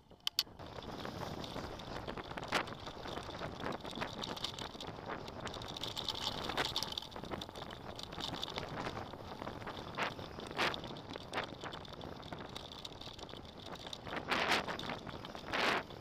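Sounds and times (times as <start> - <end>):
bike rattling over bumps: 0.0 - 16.0
bike tyres on dirt: 0.0 - 16.0.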